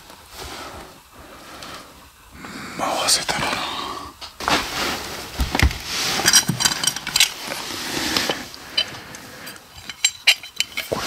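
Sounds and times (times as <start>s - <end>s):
small hard objects clinking: 6.2s - 11.0s.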